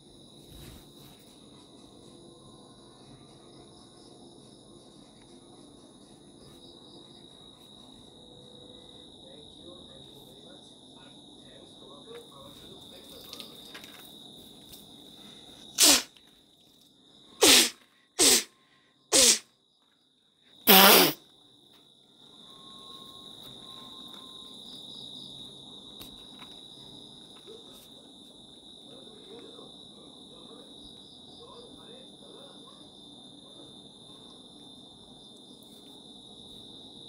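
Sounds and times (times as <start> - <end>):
insect trill: 0.0 - 37.0
loud noisy bursts: 17.4 - 18.5.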